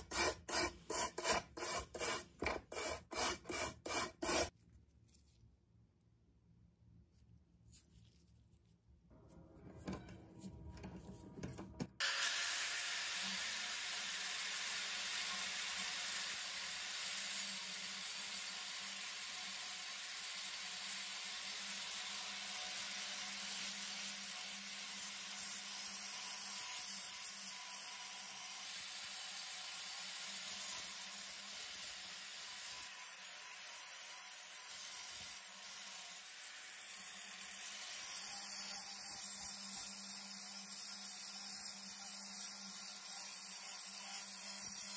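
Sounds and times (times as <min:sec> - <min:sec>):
power tool grinding metal: 0:00.0 - 0:04.5, 0:12.0 - 0:44.9.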